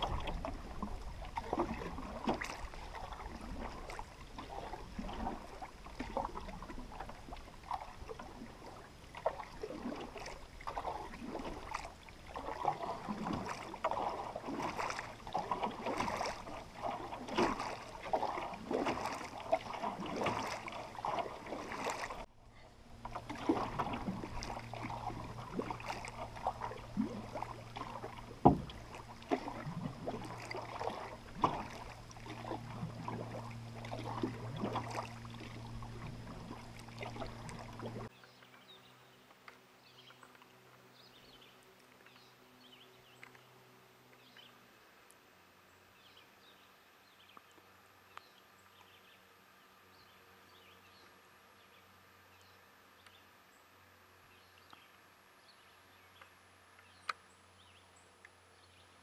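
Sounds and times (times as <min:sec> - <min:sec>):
water lapping against canoe hull: 0:00.0 - 0:44.6
steady low hum: 0:00.0 - 0:59.0.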